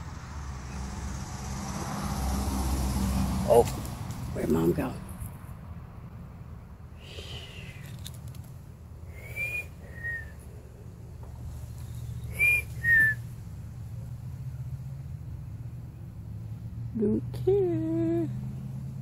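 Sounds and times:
person whistling two-note calls: 9.1s - 10.3s, 12.3s - 13.2s.

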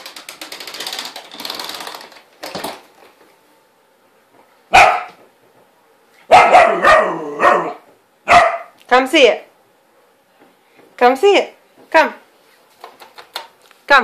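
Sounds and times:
vacuum cleaner rattling: 0.0s - 3.1s
puppy barking: 4.7s - 5.2s, 6.3s - 8.8s.

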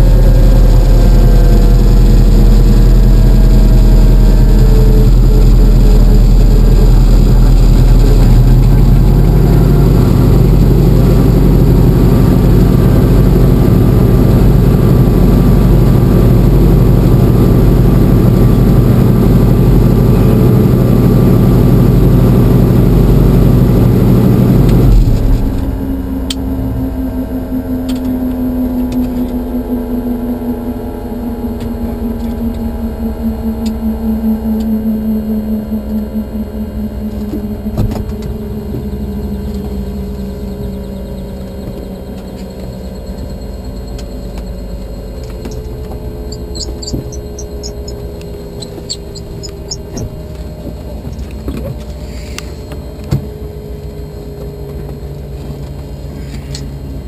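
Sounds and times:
helicopter rotor winding down: 0.0s - 55.4s
faint high chirps: 39.1s - 50.3s.

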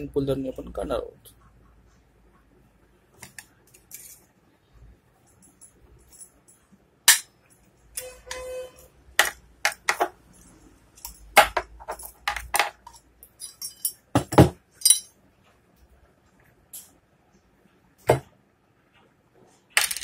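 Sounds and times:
metal parts clinking: 3.7s - 4.3s, 5.3s - 15.2s.

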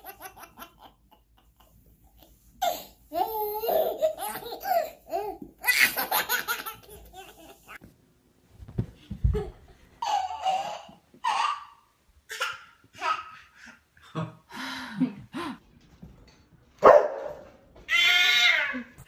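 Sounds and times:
baby belly-laughing: 2.6s - 7.8s, 9.3s - 13.8s.

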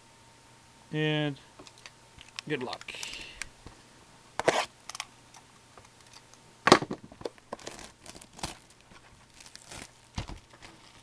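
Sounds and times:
plastic wrap crinkling and tearing: 7.5s - 11.0s.

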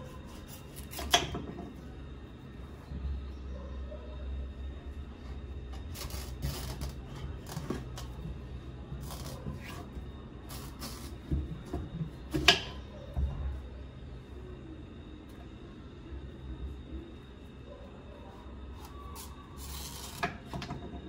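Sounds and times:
knife cutting pumpkin rind: 0.0s - 1.4s, 5.8s - 8.0s, 10.5s - 11.3s.

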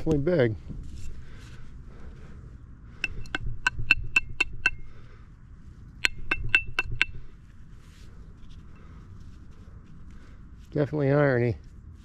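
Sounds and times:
metal tapping against metal: 3.0s - 5.0s, 6.0s - 7.4s.

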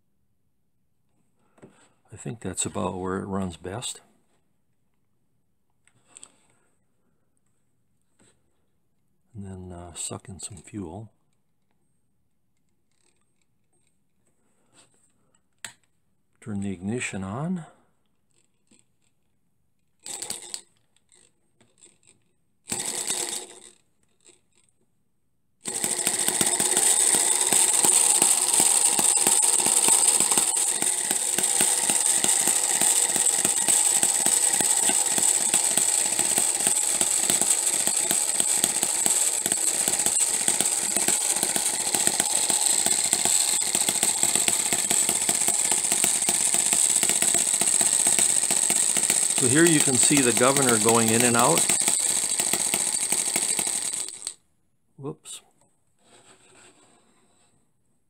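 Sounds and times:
small engine running with rapid ticking: 20.0s - 20.6s, 22.7s - 23.8s, 25.6s - 54.4s
small engine cranked by hand: 20.0s - 24.7s, 25.6s - 54.4s.

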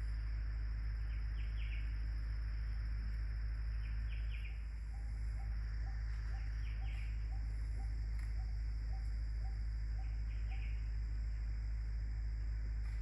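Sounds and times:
high insect drone: 0.0s - 13.0s
birds calling: 3.8s - 11.0s.

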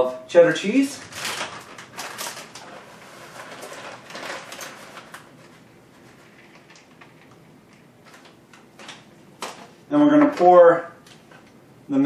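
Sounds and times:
plastic bag crinkling: 0.9s - 9.7s.

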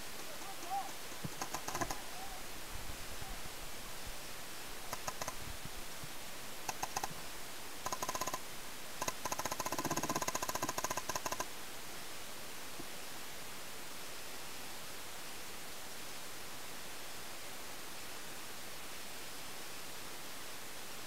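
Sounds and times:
paintball markers firing: 0.4s - 2.0s, 5.0s - 5.3s, 9.0s - 11.4s.

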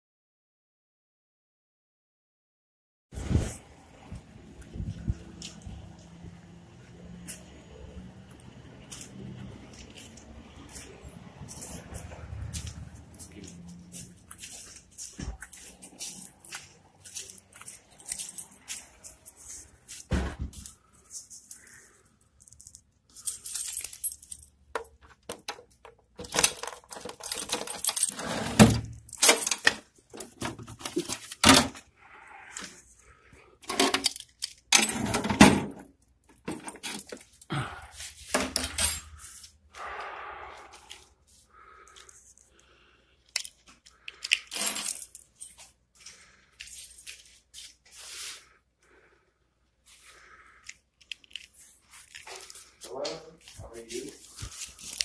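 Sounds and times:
keys jangling: 8.3s - 30.4s, 38.4s - 39.5s, 43.3s - 47.7s
breathing close to microphone: 37.5s - 38.3s, 47.9s - 50.9s
paper envelopes rustling: 51.2s - 55.0s.

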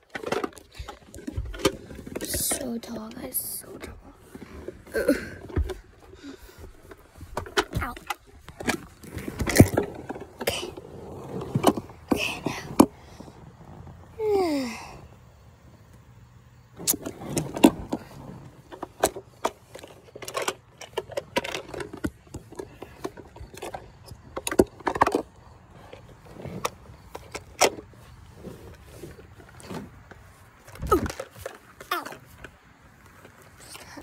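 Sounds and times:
phone handling clicks and rustles: 0.0s - 10.5s, 16.8s - 28.1s.

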